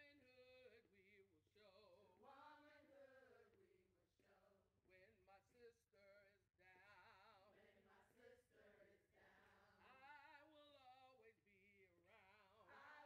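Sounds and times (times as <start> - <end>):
person chanting a song: 11.9 - 13.0.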